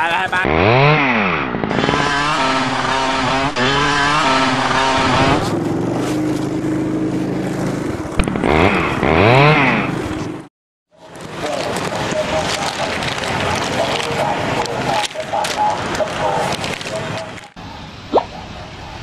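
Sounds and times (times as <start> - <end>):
motorcycle engine revving: 0.3 - 10.5.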